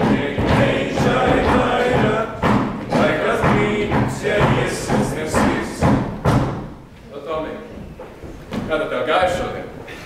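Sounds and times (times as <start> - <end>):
choir singing with accompaniment: 0.0 - 6.8
heavy thuds: 0.0 - 7.0.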